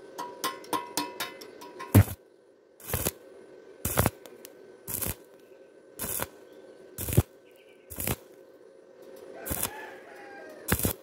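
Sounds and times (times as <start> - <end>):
welding arc crackling: 2.0 - 2.2, 2.8 - 3.2, 3.8 - 5.4, 6.0 - 6.4, 7.0 - 8.4, 9.4 - 10.0, 10.7 - 11.0.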